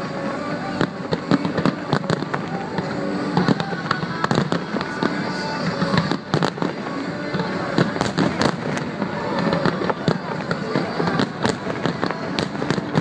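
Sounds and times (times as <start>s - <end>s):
fireworks bursting with sharp bangs: 0.0s - 13.0s
fireworks crackle and rumble: 0.0s - 13.0s.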